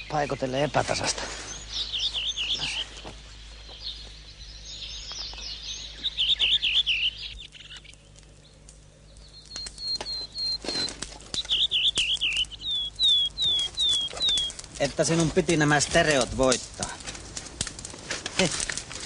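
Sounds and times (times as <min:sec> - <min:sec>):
birds singing: 0:00.0 - 0:17.0
rustles and snaps in undergrowth: 0:05.0 - 0:19.0.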